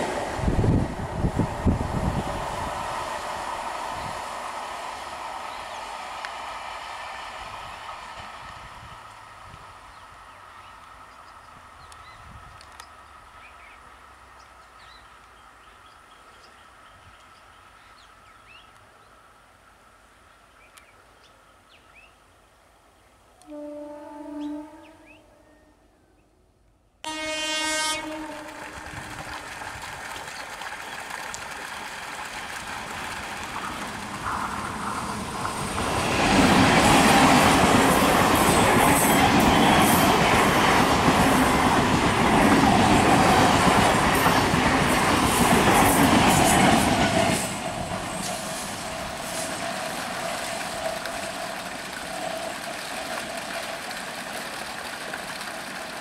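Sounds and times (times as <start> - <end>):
train rumbling past: 0.0 - 18.7, 27.0 - 56.0
approaching train running: 0.0 - 20.6, 27.0 - 56.0
train horn blast: 23.4 - 25.7, 27.0 - 28.9
wheels clacking over rail joints: 28.0 - 56.0.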